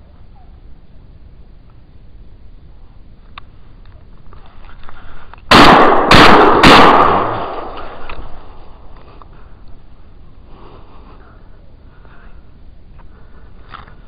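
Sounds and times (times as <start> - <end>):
loud echoing gunshots: 5.5 - 8.6.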